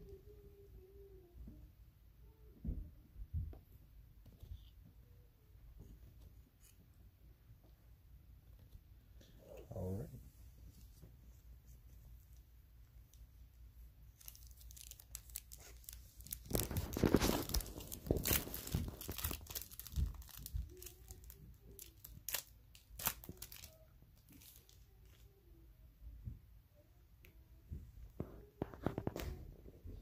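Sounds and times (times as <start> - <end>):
wrapper ripping and crinkling: 14.1 - 25.2.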